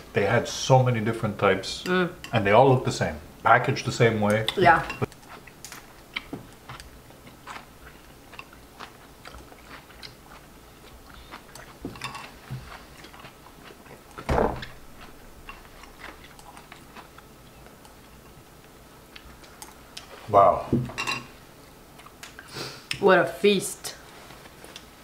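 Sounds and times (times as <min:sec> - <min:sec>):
people chewing noodles: 0:04.6 - 0:14.3, 0:15.0 - 0:18.4.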